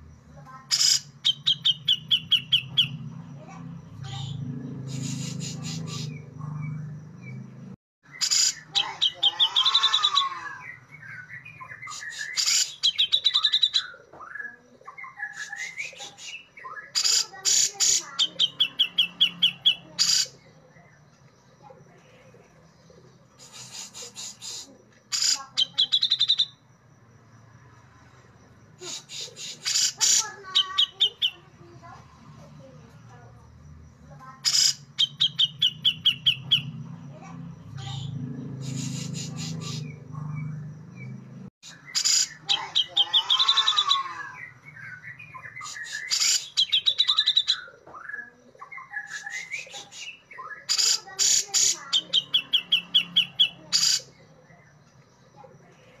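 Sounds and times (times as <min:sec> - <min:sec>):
bird singing varied song: 0:00.1 - 0:26.9, 0:28.8 - 0:56.0.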